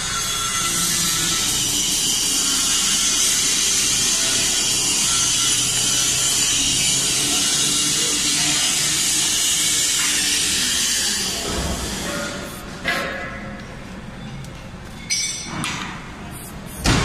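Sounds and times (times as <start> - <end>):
machine hiss: 0.0 - 12.7.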